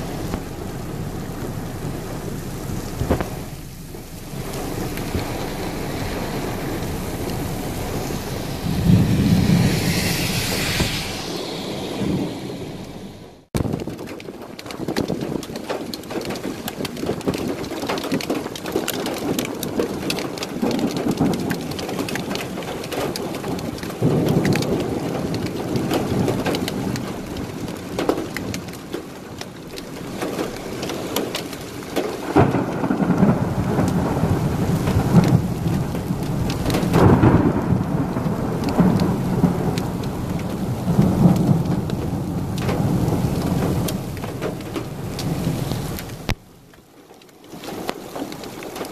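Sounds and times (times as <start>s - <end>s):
low rumbling: 0.0s - 13.6s
heavy rain pelting a car: 0.0s - 48.9s.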